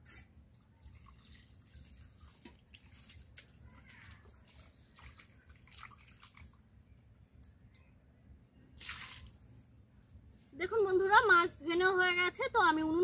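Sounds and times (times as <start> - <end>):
water drips and small splashes: 0.0 - 7.9, 8.8 - 10.2
water splash: 8.8 - 9.5.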